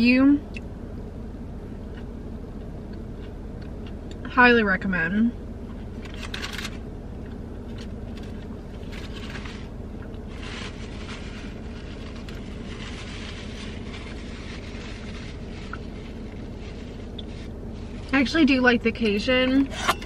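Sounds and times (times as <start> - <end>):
car engine droning: 0.0 - 20.0
person chewing: 2.9 - 4.2
wrapper paper rustling: 7.7 - 18.2.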